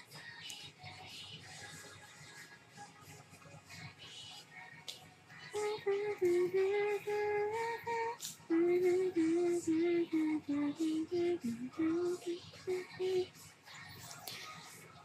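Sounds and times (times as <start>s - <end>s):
woman singing slow melody: 3.7s - 15.0s.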